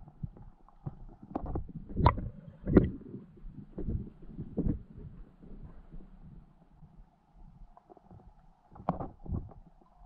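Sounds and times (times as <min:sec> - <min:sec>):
underwater rumble: 0:00.0 - 0:10.0
muffled underwater thumps: 0:00.2 - 0:03.0, 0:08.8 - 0:09.6.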